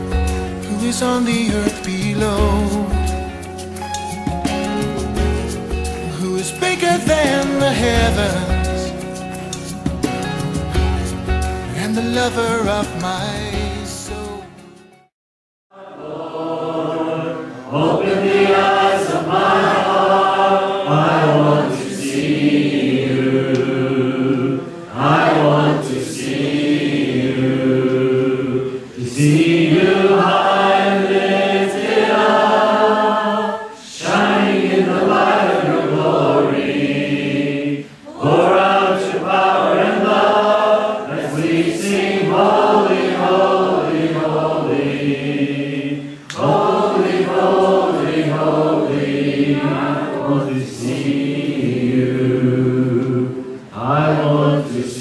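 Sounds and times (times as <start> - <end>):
group singing a hymn: 5.9 - 9.0, 15.7 - 55.0.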